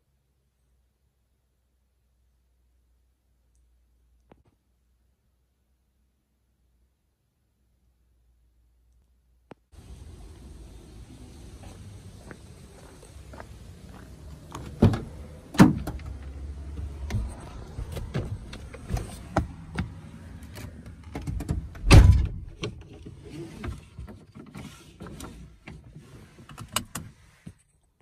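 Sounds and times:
truck door opening: 14.4s - 22.8s
door shutting with heavy thud: 21.7s - 22.6s.

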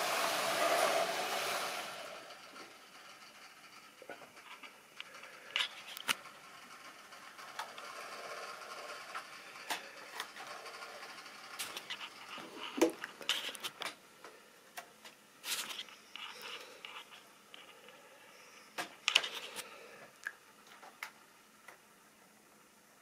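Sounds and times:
model train wheels rattling: 0.0s - 13.9s.

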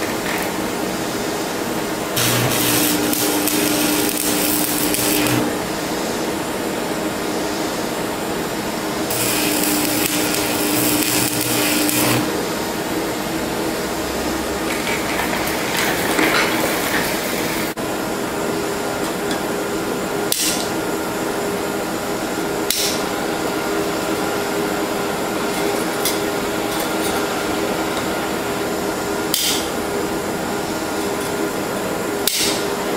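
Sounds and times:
welding arc crackling and hissing: 0.0s - 8.0s, 8.6s - 13.0s, 14.0s - 17.8s, 29.3s - 29.7s
torch hissing: 2.2s - 6.0s, 9.0s - 12.7s.

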